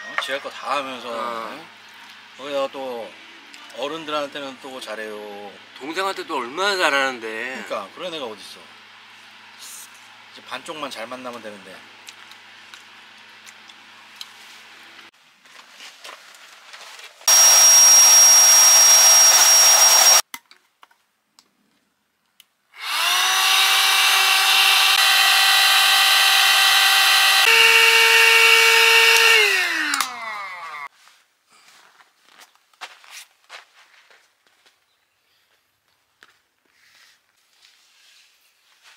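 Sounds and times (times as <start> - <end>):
small electric motor whining: 17.3 - 20.2, 22.8 - 30.9.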